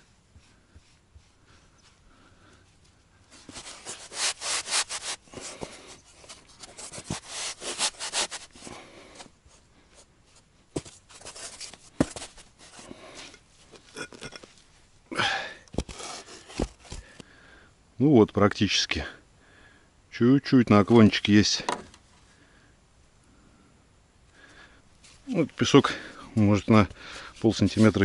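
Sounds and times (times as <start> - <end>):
scraping and digging in sand: 3.3 - 9.2, 15.8 - 16.8, 27.2 - 28.0.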